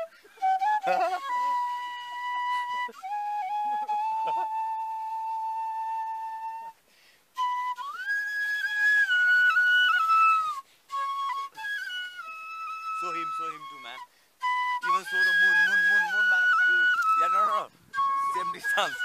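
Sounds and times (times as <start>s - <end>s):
bamboo flute melody: 0.0s - 19.0s.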